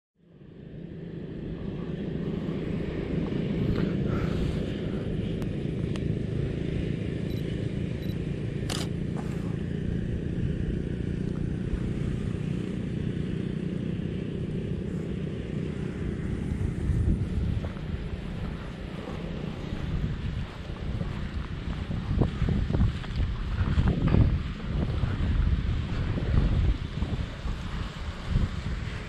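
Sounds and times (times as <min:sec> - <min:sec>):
wind buffeting microphone: 0:00.7 - 0:29.0
sharp click: 0:08.6 - 0:08.9.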